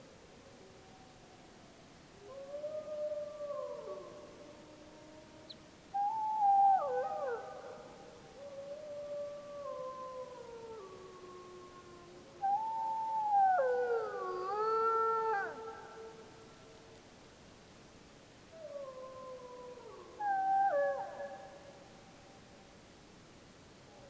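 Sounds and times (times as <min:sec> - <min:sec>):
wolves howling in chorus: 0:02.2 - 0:16.3, 0:18.6 - 0:21.7.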